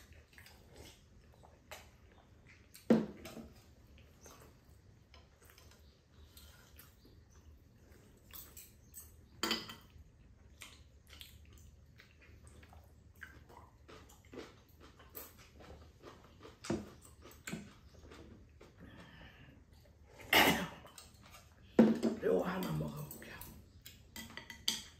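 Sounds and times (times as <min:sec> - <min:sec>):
chewing: 0:00.0 - 0:09.3, 0:09.9 - 0:21.7.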